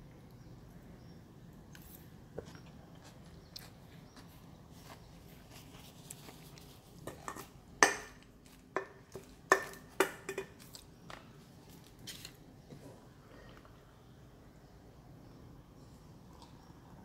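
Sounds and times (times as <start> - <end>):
tableware knocking and clinking: 7.1 - 8.2, 8.8 - 10.6.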